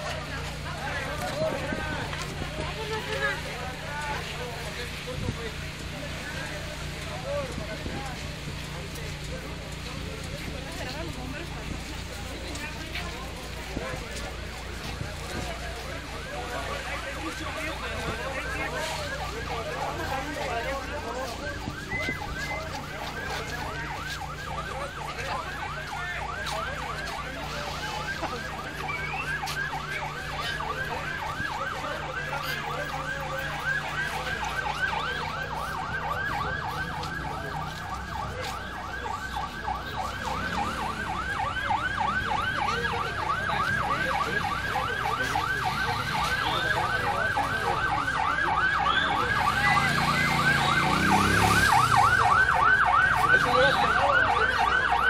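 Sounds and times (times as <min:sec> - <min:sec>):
siren yelping: 0:15.8 - 0:55.0.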